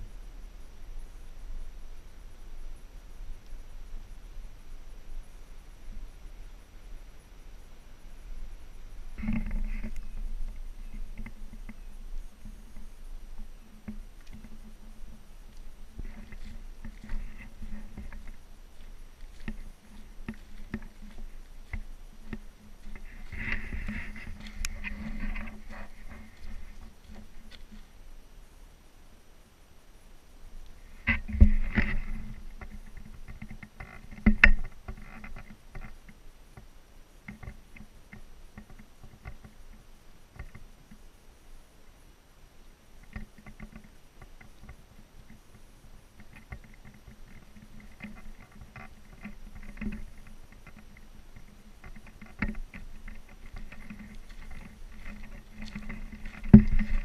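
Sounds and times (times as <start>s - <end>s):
light clicks and rustles: 9.0s - 28.2s, 30.6s - 41.1s, 43.0s - 57.0s
footsteps on wooden boardwalk: 9.5s - 28.0s, 46.2s - 57.0s
camera handling knocks and rubbing: 16.0s - 27.8s, 51.4s - 57.0s.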